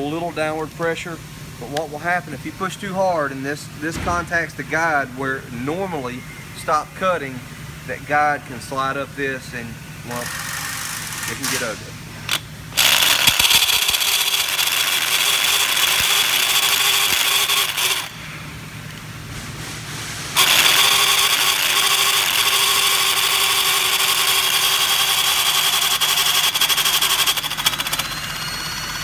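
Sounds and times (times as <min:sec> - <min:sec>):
cordless drill whirring: 0:10.1 - 0:18.2, 0:20.4 - 0:29.0.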